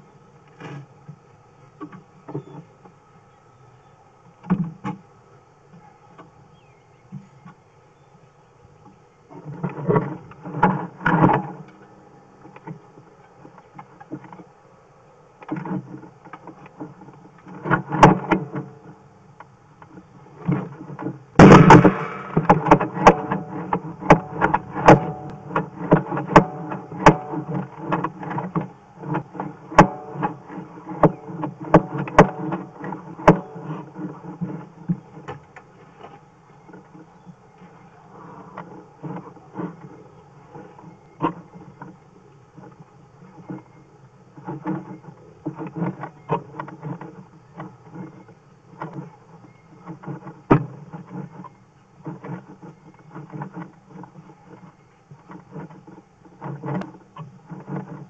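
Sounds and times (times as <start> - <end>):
low steady hum: 0.0 - 58.0
loud bump: 21.4 - 25.3.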